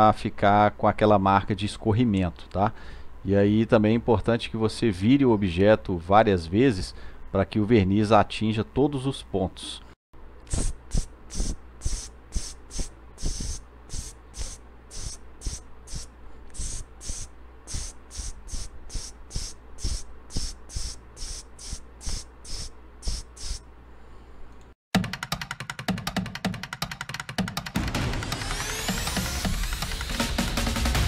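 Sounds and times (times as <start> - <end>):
aerosol spray puffs: 10.5 - 23.6
music with a steady beat: 25.0 - 31.0.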